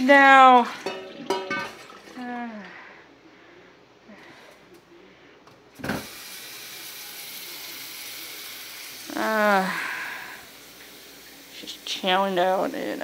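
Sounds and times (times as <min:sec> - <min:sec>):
kitchen tap running: 0:00.0 - 0:02.2, 0:05.8 - 0:13.0.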